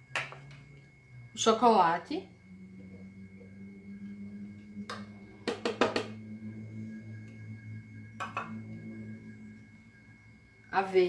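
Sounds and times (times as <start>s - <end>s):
low hum: 0.0s - 11.0s
plastic bowl tapping blender jar: 5.5s - 6.2s.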